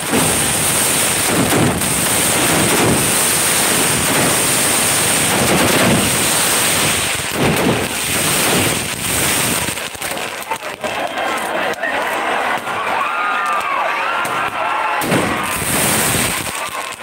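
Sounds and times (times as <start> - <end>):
low firework swells: 0.0 - 10.8, 15.0 - 17.0
high hiss of spark fountains: 0.0 - 12.1, 14.4 - 17.0
firecrackers crackling: 0.0 - 17.0.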